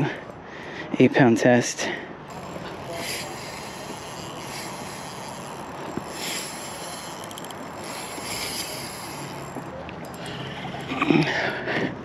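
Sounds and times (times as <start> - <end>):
wind and water hiss: 2.2 - 10.3
fishing reel drag hissing: 2.3 - 10.9
reel clicks: 2.3 - 11.2.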